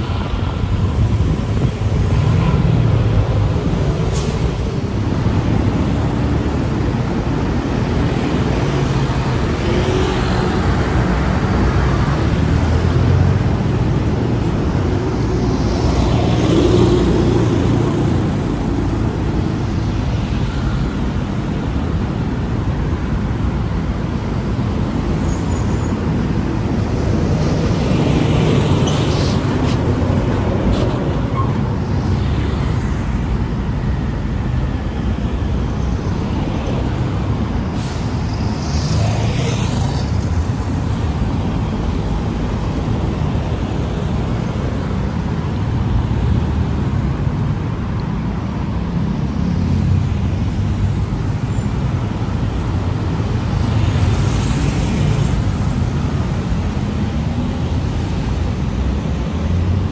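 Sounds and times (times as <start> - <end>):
road traffic: 0.0 - 59.9
vehicles passing: 0.0 - 59.9.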